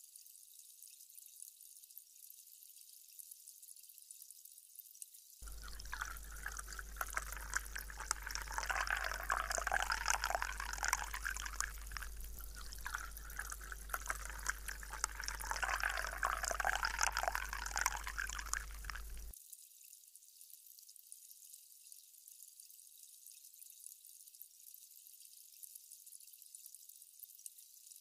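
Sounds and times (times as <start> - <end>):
fizzy drink pouring over ice: 5.4 - 19.3.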